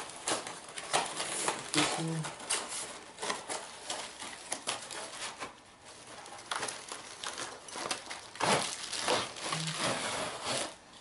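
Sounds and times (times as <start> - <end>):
cardboard and packing rustling: 0.0 - 11.0.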